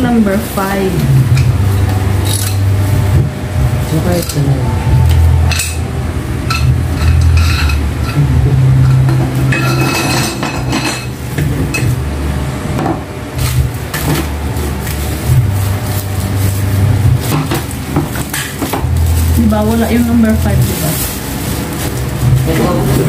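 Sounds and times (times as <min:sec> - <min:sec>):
low hum: 0:00.0 - 0:23.0
plastic wrapping rustling: 0:13.4 - 0:23.0.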